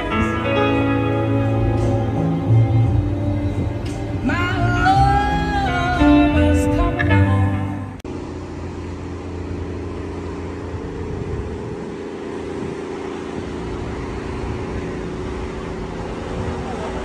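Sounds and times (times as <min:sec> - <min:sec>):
music: 0:00.0 - 0:08.0
low rumbling outdoor noise: 0:00.0 - 0:17.0.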